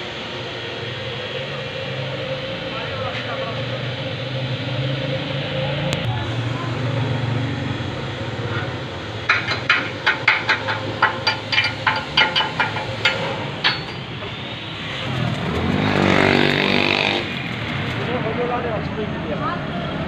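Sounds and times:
engine rising in pitch: 0.0 - 9.3, 12.8 - 20.0
low motor hum: 0.0 - 19.9
metal-on-metal taps: 9.2 - 14.0.

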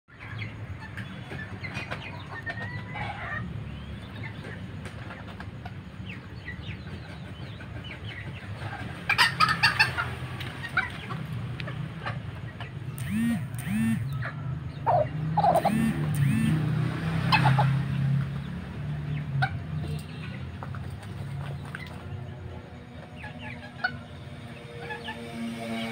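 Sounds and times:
chickens clucking: 0.1 - 25.9
low background hum: 12.4 - 16.7.

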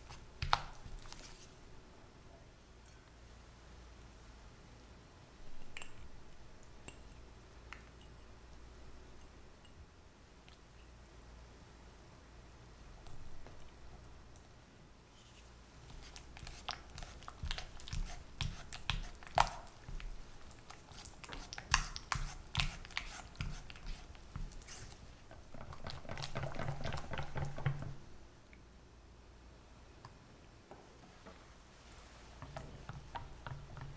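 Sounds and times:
spatula squelching in cream: 15.8 - 27.2.

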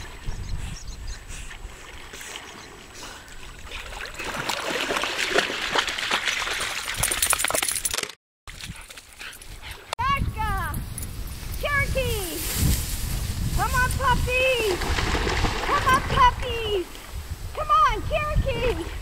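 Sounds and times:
water splashing and sloshing: 1.3 - 10.0, 12.4 - 17.7.

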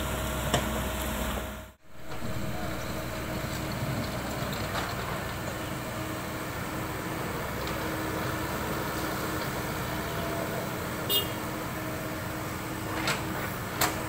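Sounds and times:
diesel engine running: 0.0 - 14.0
hydraulic arm digging: 1.9 - 11.0.

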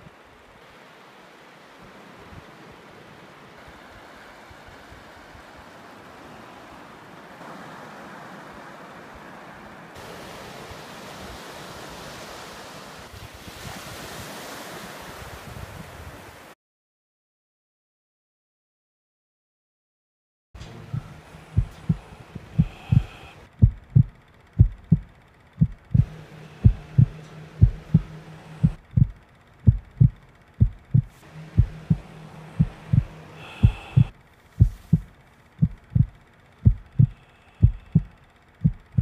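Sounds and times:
low droning tone: 20.6 - 39.0
heartbeat double thump: 20.9 - 22.0, 22.6 - 32.0, 32.6 - 39.0.

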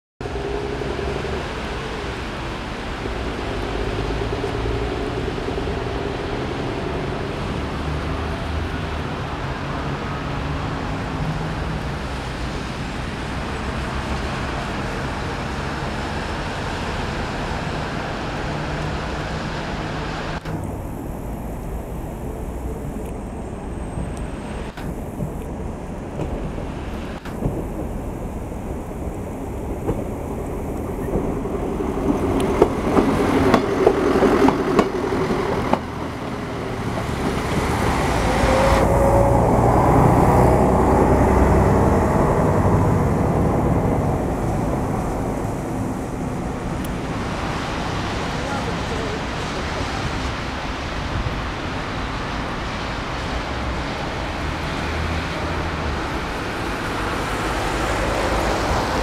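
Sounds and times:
diesel engine rumble: 0.2 - 59.0.

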